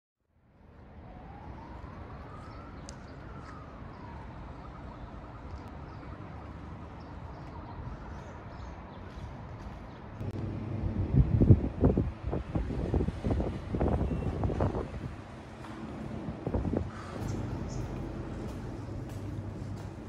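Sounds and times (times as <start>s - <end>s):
wind: 0.2s - 20.0s
traffic rumble: 0.6s - 20.0s
distant wailing tone: 15.2s - 20.0s.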